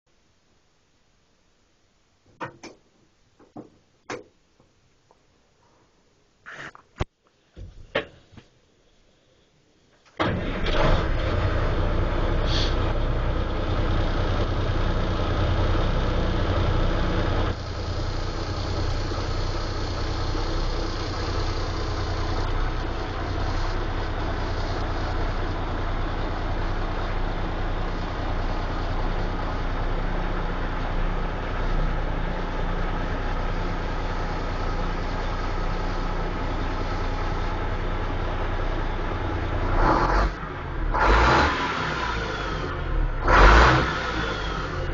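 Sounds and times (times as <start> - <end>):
diesel engine starting and idling: 10.2 - 44.9
brief hiss: 12.4 - 12.9.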